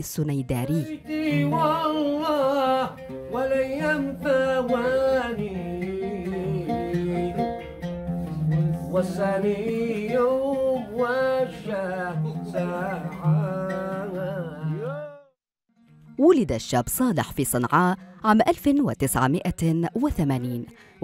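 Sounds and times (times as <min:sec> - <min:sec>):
man singing: 0:00.6 - 0:07.6, 0:08.2 - 0:15.4
oud playing: 0:00.7 - 0:15.2.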